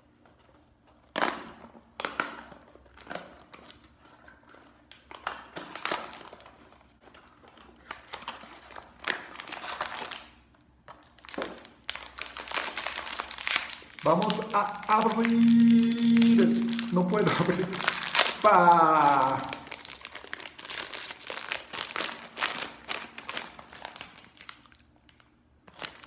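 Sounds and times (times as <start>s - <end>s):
foil bag crinkling: 2.7s - 26.0s
carton tearing: 11.2s - 24.6s.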